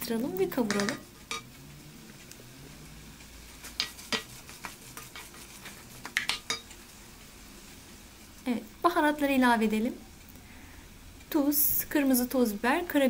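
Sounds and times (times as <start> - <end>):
food sizzling in pot: 0.0 - 13.0
spoon scraping and knocking pot: 0.6 - 1.5, 3.6 - 6.7.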